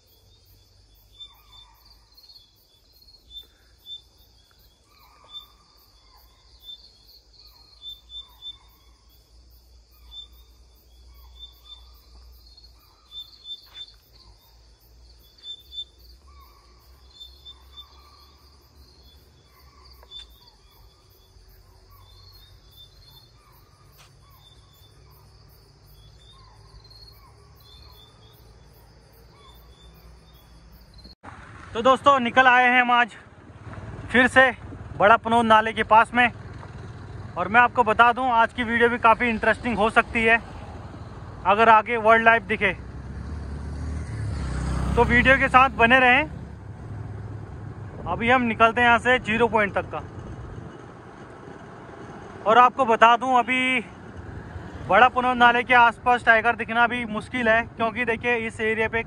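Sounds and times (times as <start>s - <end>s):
deer alarm calls: 0.0s - 30.5s
insects chirring: 0.0s - 31.2s, 31.8s - 59.0s.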